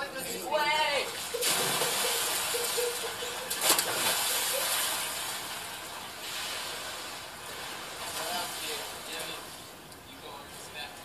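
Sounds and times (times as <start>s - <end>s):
pool water splashing: 0.0s - 10.9s.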